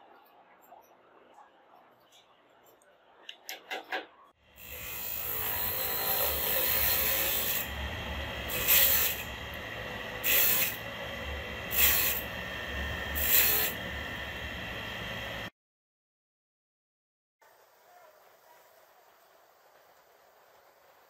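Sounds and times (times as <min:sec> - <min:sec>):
bench saw running: 0:04.5 - 0:15.5
saw cutting wood: 0:04.5 - 0:15.5.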